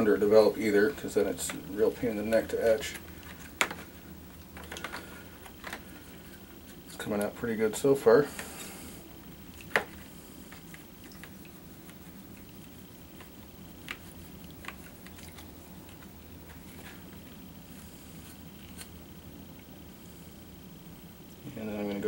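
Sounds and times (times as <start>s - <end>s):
steady low hum: 0.0s - 22.0s
small wet sounds: 8.4s - 22.0s.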